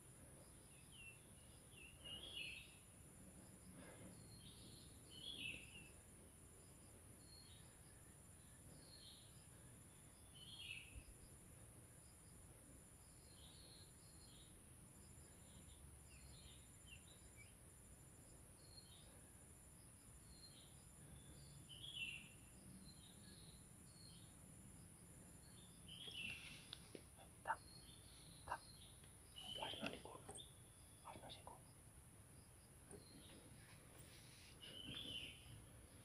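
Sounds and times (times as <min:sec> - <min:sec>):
bird chirps: 0:25.4 - 0:31.6, 0:32.8 - 0:35.6.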